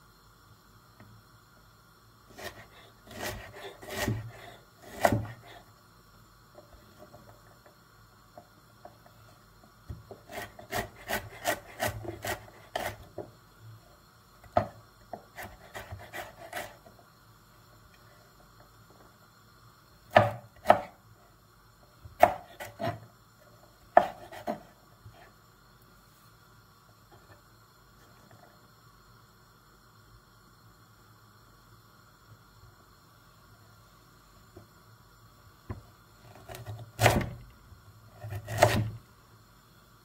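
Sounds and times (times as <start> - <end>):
knife chopping on wooden board: 2.4 - 5.4, 20.1 - 20.9, 22.2 - 23.0, 24.0 - 24.7, 36.5 - 37.4, 38.2 - 39.0.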